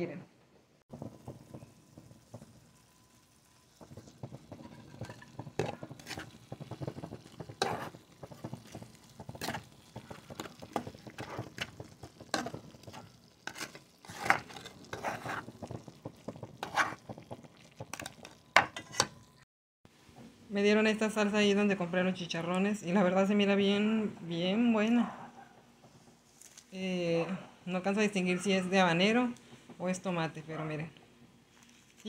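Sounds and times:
low sizzle: 0:00.0 - 0:32.0
utensil scraping frying pan: 0:03.5 - 0:19.3.

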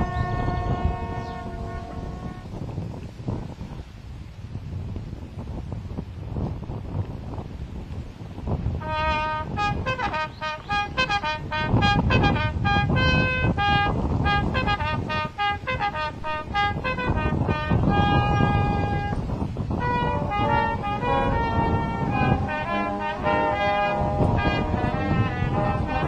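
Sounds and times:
brass band playing: 0:00.0 - 0:02.4, 0:08.8 - 0:26.0
wind rumbling on microphone: 0:00.0 - 0:26.0.

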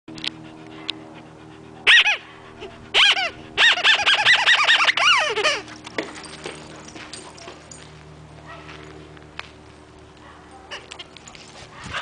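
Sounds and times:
dog whining in high yelps: 0:01.8 - 0:05.8.

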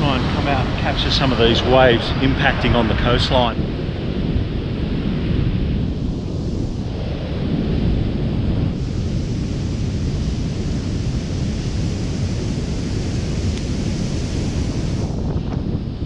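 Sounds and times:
heavy surf breaking: 0:00.0 - 0:16.0
wind buffeting microphone: 0:00.0 - 0:16.0.

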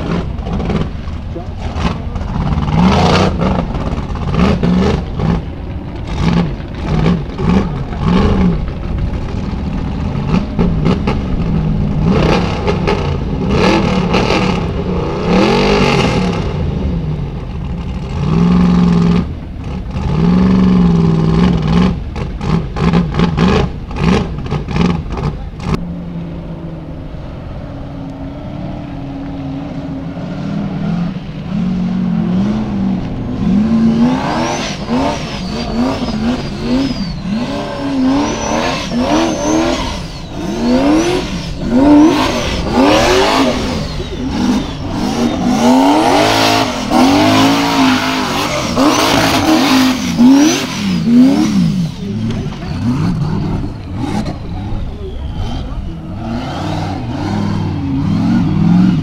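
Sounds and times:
buggy engine revving hard: 0:00.0 - 0:26.6, 0:27.5 - 0:59.0.

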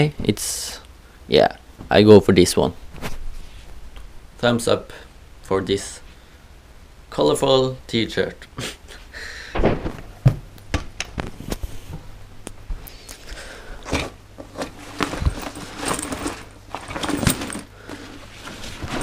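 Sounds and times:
bag being packed rustling: 0:13.9 - 0:19.0.

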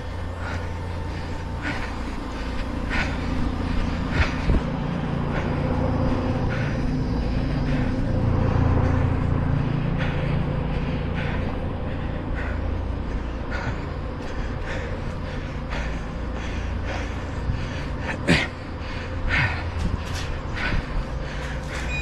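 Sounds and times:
runner breathing hard: 0:00.0 - 0:22.0
vehicle engine rumble: 0:00.0 - 0:22.0.

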